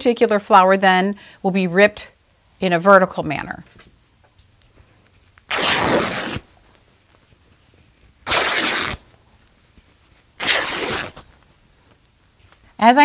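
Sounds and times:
fabric tearing: 5.4 - 6.5, 8.2 - 9.1, 10.4 - 11.4.

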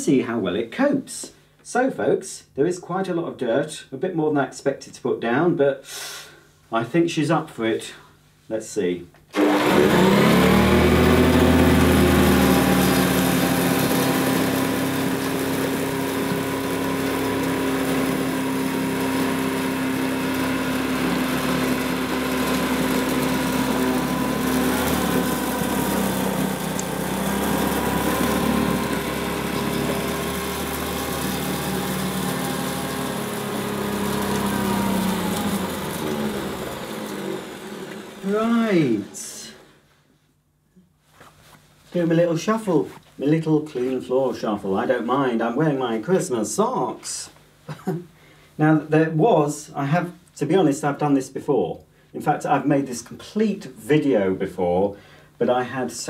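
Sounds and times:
vacuum cleaner motor whine: 9.4 - 39.7
vacuum over gritty carpet: 9.4 - 39.7.

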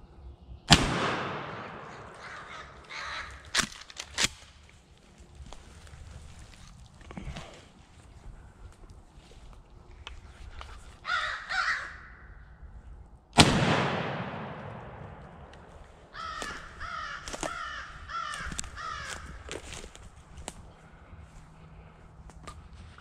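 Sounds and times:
shotgun shot echoing: 0.7 - 3.1, 13.4 - 16.6
crow cawing: 1.7 - 3.6, 11.0 - 12.4, 16.1 - 19.8.

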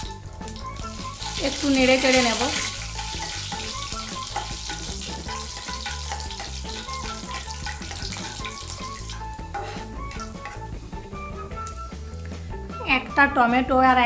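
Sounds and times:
spices sizzling in hot oil: 0.0 - 12.2
light plucked background music: 0.0 - 14.0
spatula stirring: 0.8 - 11.3.

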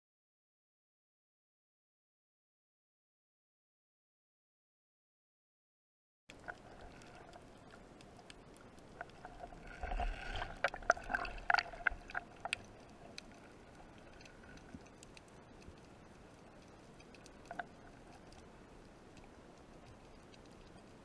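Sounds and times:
faint steady hum: 6.3 - 21.0
underwater clicks and crackles: 6.3 - 21.0.

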